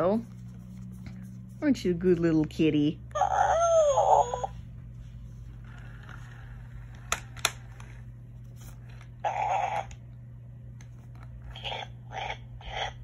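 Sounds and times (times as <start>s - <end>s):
toy cub sound from speaker: 9.2s - 10.0s.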